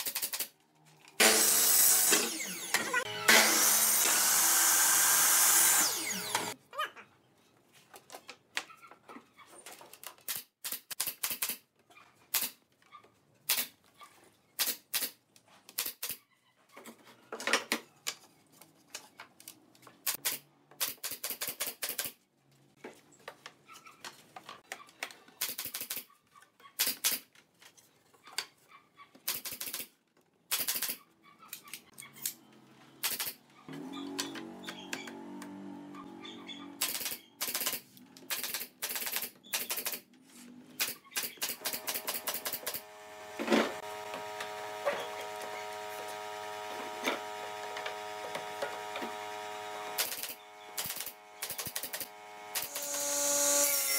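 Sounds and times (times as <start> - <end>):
miter saw cutting wood: 1.2 - 6.6, 33.7 - 36.8, 41.6 - 53.9.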